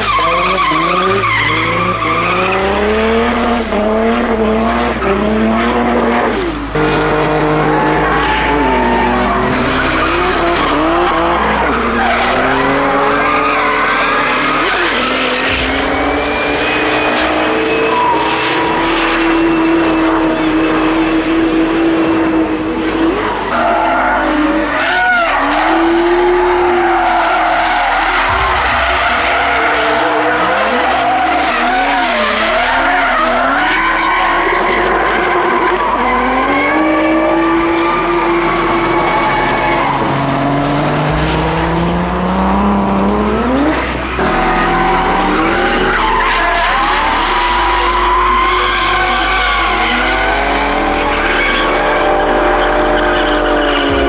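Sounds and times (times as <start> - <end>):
car engines revving: 0.0 - 54.0
tyres squealing: 7.6 - 20.2, 42.0 - 54.0.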